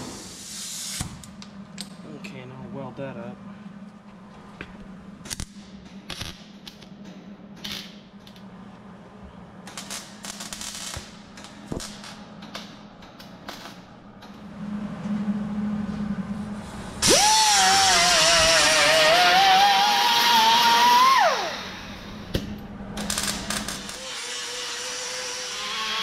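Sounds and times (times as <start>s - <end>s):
steady low hum: 0.0s - 19.4s, 21.3s - 24.0s.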